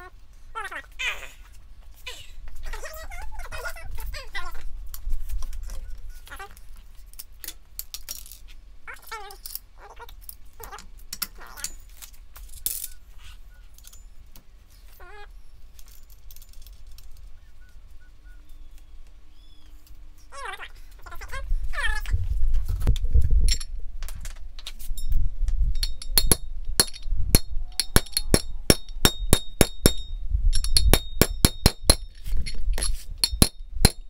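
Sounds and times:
small metal hardware clinking: 23.5s - 23.7s, 25.0s - 34.0s.

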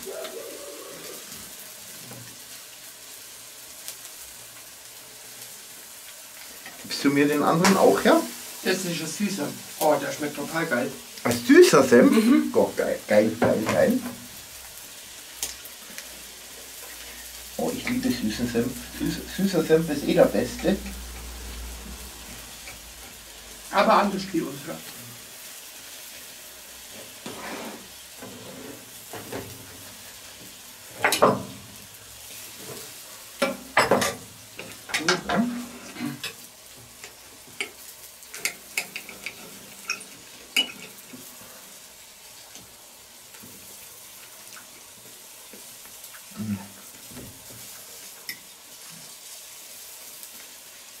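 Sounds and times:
steady background hiss: 0.0s - 51.0s
cutlery clicking on a plate: 37.6s - 41.0s.

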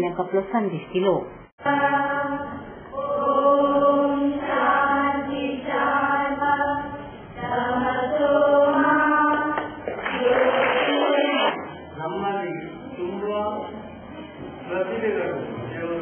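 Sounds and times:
girls singing in unison: 1.6s - 11.8s.

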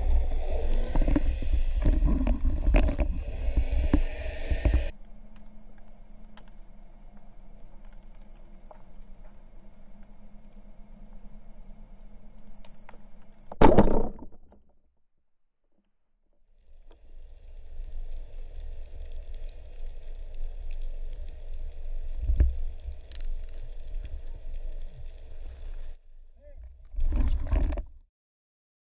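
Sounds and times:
low rush of water: 0.0s - 4.9s
speargun thunk underwater: 13.6s - 14.6s.

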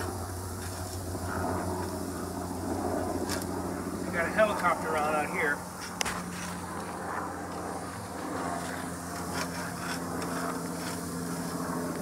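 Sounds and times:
helicopter engine and rotor drone: 0.0s - 12.0s.

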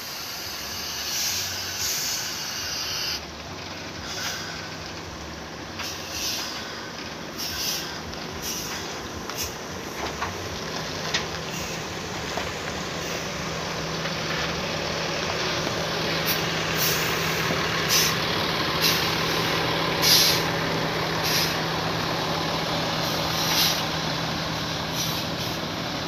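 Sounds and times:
air brake hisses: 0.0s - 3.2s, 4.0s - 4.8s, 5.8s - 9.6s, 11.5s - 11.9s, 16.2s - 18.2s, 18.8s - 20.6s, 21.2s - 21.7s, 23.0s - 24.0s, 24.9s - 25.7s
bus diesel engine running: 0.0s - 26.0s.

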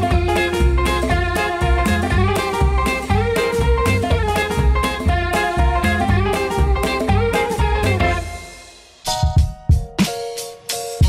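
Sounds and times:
instrumental music with steady beat: 0.0s - 11.0s.

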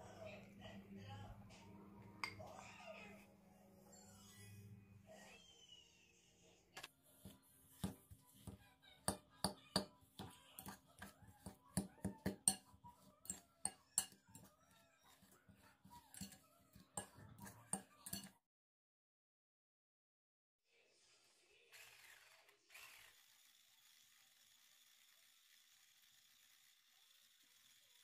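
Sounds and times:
spoon clinking in glass bowl: 9.1s - 14.5s, 15.1s - 18.4s.

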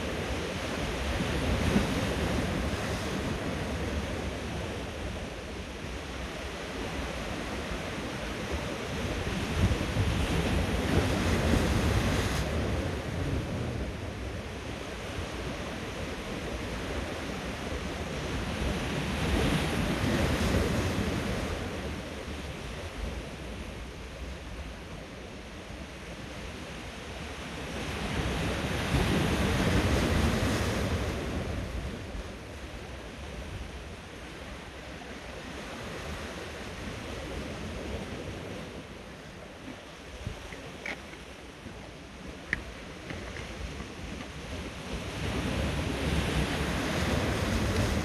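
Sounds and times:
waves washing over rocks: 0.0s - 23.7s, 34.2s - 48.0s.

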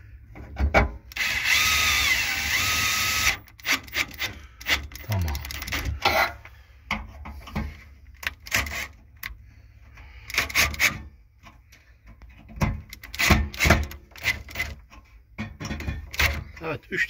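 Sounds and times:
screwdriver scraping metal: 1.1s - 6.4s, 8.2s - 9.3s, 10.3s - 11.0s, 12.9s - 14.8s.

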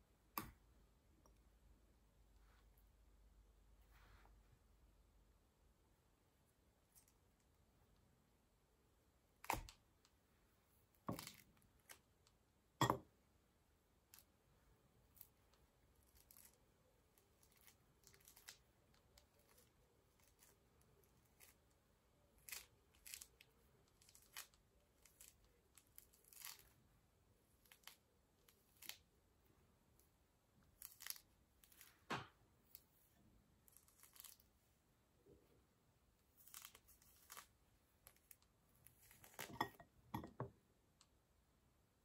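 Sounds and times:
orange peel tearing: 22.4s - 26.8s, 36.4s - 39.5s.

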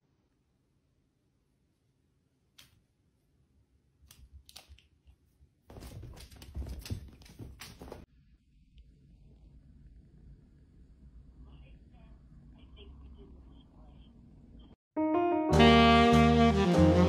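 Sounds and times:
rustling and crackling: 5.7s - 8.1s.

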